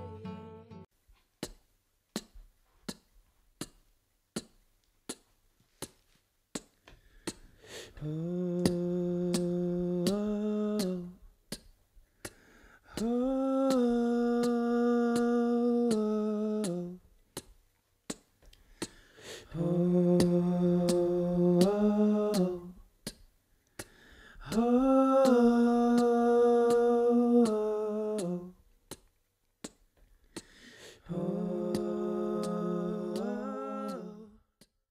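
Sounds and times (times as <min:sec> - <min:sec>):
sharp snaps at a slow beat: 0:01.4 - 0:34.9
person humming held notes: 0:08.0 - 0:11.2, 0:12.9 - 0:17.0, 0:19.4 - 0:22.8, 0:24.4 - 0:28.6, 0:31.0 - 0:34.4.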